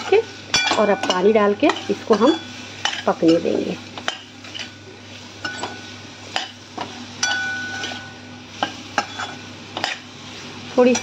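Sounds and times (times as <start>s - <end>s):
faint sizzle of frying: 0.0s - 11.0s
metal spoon scraping a pan: 0.5s - 11.0s.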